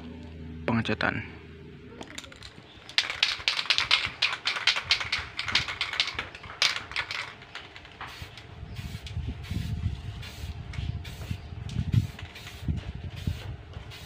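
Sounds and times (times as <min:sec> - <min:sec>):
spray can ball rattling: 0:02.0 - 0:09.6.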